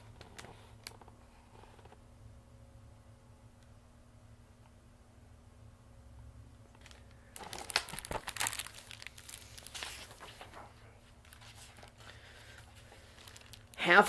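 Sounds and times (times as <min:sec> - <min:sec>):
paper rustling and crinkling: 0:00.0 - 0:02.0, 0:06.8 - 0:14.0.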